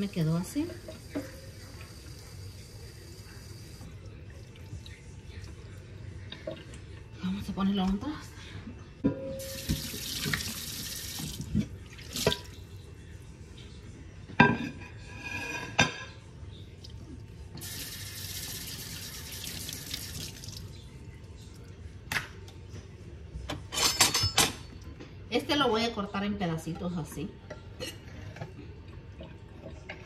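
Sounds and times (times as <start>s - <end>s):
faucet running into steel sink: 9.4s - 11.5s, 17.6s - 20.6s.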